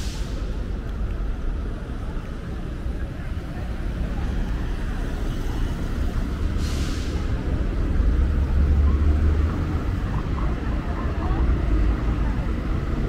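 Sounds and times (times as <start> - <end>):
low traffic rumble: 0.0 - 13.0
cars driving past: 2.6 - 13.0
short hiss: 6.6 - 7.3.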